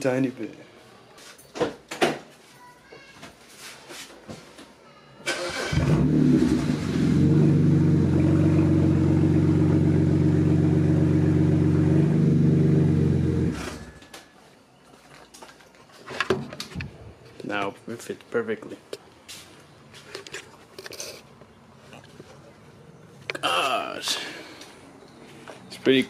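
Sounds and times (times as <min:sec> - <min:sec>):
car engine idling: 0:06.1 - 0:13.5.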